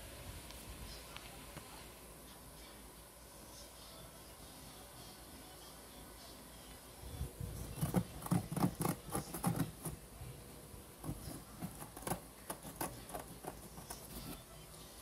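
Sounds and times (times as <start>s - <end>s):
fingers tapping on cardboard: 7.8s - 10.0s, 11.0s - 14.4s.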